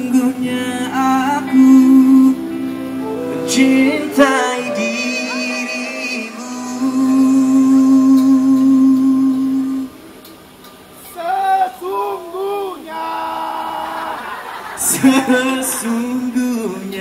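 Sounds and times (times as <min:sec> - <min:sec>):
man singing long notes: 0:00.0 - 0:10.0
electric guitars: 0:00.0 - 0:10.9.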